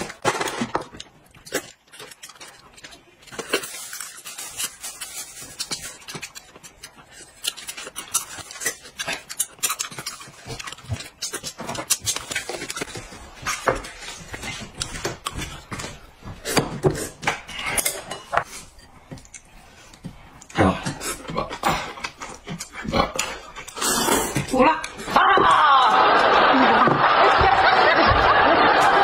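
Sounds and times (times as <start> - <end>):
slurping and mouth noises: 16.4 - 25.1.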